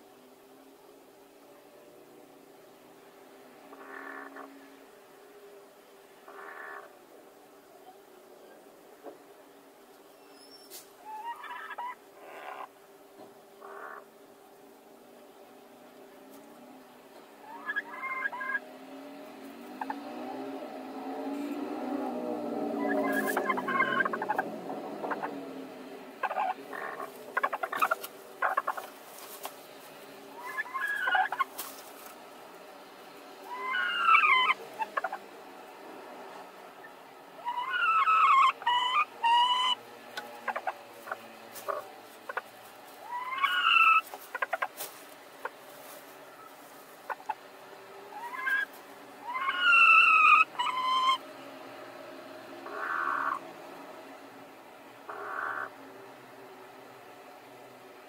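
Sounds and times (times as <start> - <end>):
hen calling: 6.2 - 7.0, 10.2 - 12.8, 13.6 - 14.2, 17.4 - 18.6, 22.6 - 25.4, 26.2 - 29.5, 30.3 - 32.1, 33.4 - 35.2, 36.8 - 51.2, 52.6 - 53.4, 55.1 - 55.8
rustles and taps in straw: 27.0 - 32.2, 41.0 - 47.2.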